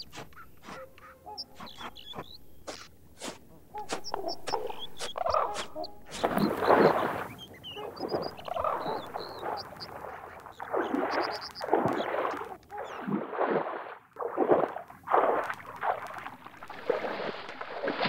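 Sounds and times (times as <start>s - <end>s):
heavy splashing in water: 8.0s - 18.0s.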